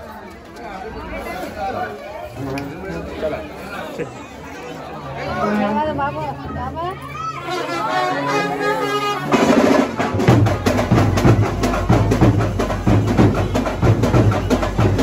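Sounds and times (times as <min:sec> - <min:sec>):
voices: 0:00.0 - 0:15.0
procession band drumming: 0:08.8 - 0:15.0.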